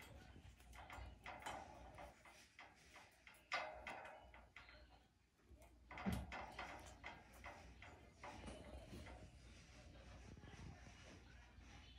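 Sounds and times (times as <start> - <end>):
teeth clicking on wire bars: 0.0 - 9.3.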